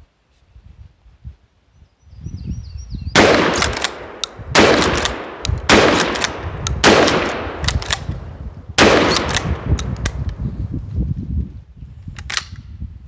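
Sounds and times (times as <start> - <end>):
sharp pump-action clacks: 3.2 - 8.2, 8.8 - 10.4
shotgun shots: 3.2 - 10.0.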